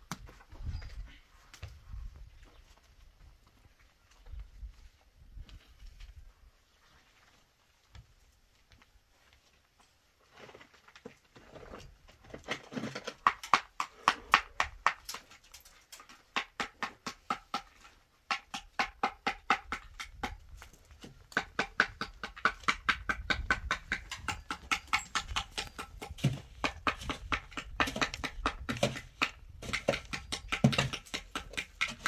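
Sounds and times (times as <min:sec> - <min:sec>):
metal tool striking concrete block: 0:21.4 - 0:32.0.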